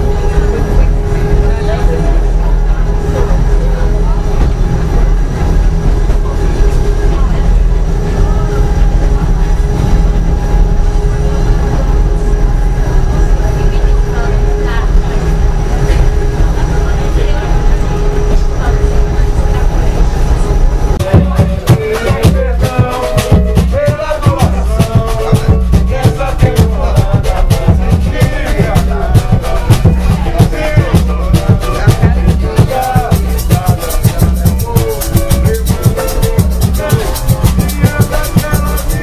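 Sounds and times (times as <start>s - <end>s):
jingling hand percussion: 21.0s - 39.0s
people singing: 21.0s - 39.0s.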